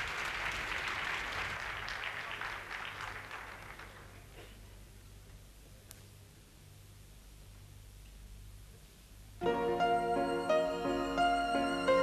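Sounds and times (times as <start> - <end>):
audience applauding: 0.0 - 4.4
faint low hum: 0.0 - 12.0.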